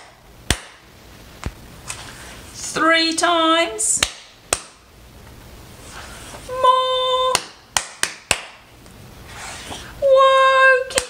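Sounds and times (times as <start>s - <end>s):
hands clapping: 0.5s - 0.8s, 4.0s - 4.8s, 7.3s - 8.6s.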